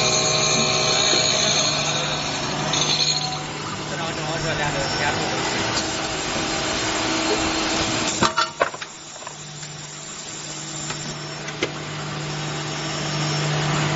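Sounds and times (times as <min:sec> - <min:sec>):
sharp metal clanks: 0:00.0 - 0:03.6
drilling machine running: 0:00.0 - 0:13.9.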